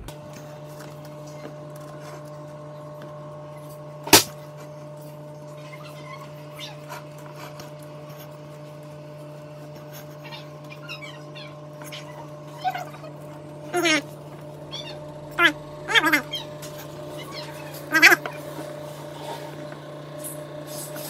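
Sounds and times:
kitchen appliance electrical hum: 0:00.0 - 0:21.0
spatula scraping cream: 0:00.5 - 0:15.2.

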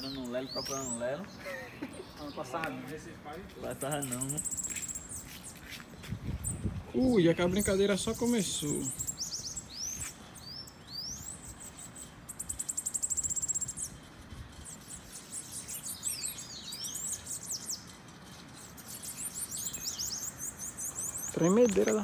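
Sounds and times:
birds chirping: 0:00.0 - 0:22.0
loud fast bird trill: 0:06.4 - 0:22.0.

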